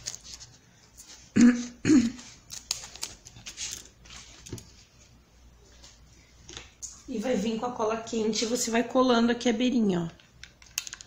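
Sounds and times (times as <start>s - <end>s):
faint handling sounds: 0.0s - 1.3s, 2.2s - 7.1s.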